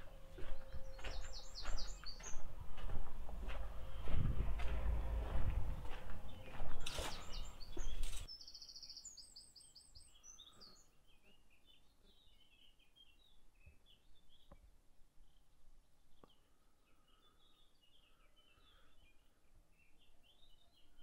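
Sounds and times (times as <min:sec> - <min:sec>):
loud scuffing: 0:00.0 - 0:08.3
small birds chirping: 0:00.0 - 0:21.0.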